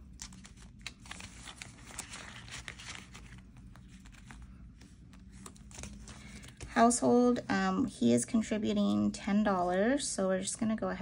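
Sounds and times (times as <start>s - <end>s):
paper rustling and crinkling: 0.0s - 7.0s.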